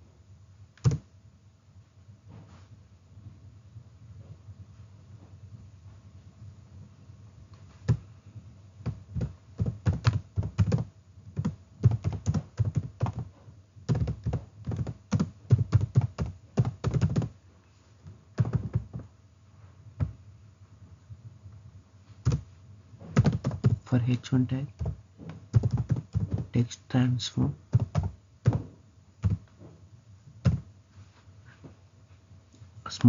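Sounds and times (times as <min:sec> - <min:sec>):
computer keyboard typing: 0:00.8 - 0:01.0, 0:07.8 - 0:08.0, 0:08.8 - 0:13.3, 0:13.9 - 0:17.3, 0:18.4 - 0:19.0, 0:22.2 - 0:22.4, 0:23.1 - 0:23.9, 0:24.7 - 0:26.6, 0:27.7 - 0:29.5, 0:30.4 - 0:30.6.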